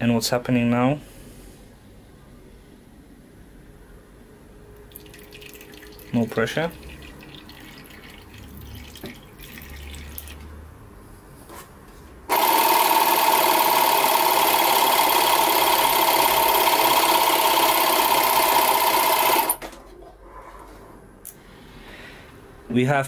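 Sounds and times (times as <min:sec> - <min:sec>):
tire inflator compressor running: 0:12.3 - 0:19.6.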